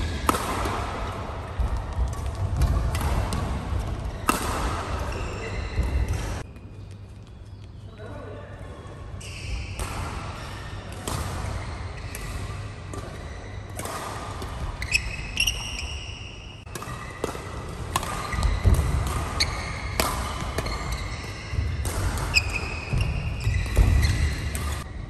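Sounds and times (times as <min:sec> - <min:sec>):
racket hitting shuttlecock: 0:00.0 - 0:06.5, 0:09.8 - 0:25.0
shoes squeaking on court: 0:01.5 - 0:08.0, 0:14.5 - 0:17.2, 0:18.0 - 0:25.0.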